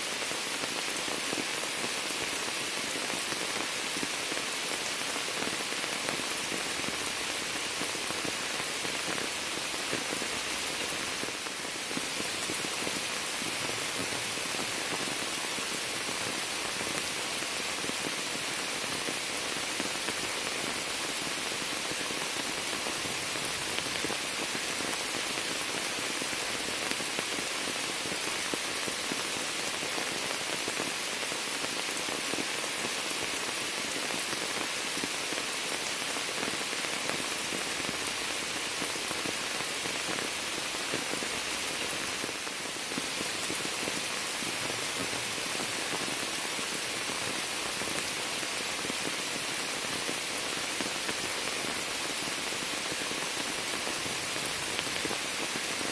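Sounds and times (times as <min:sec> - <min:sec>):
rain on water and leaves: 0:00.0 - 0:55.9.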